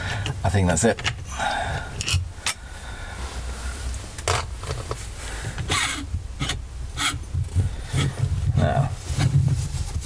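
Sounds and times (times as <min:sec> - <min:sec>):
low steady hum: 0:00.0 - 0:10.0
metal parts scraping and knocking: 0:02.0 - 0:02.6.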